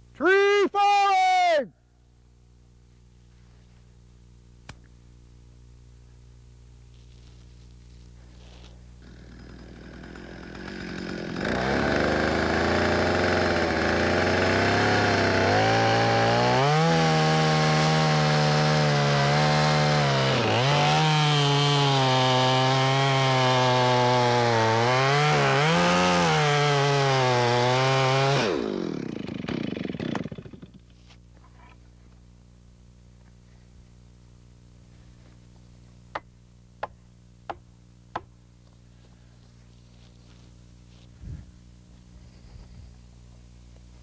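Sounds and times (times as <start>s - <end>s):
chainsaw cutting: 8.2s - 31.2s.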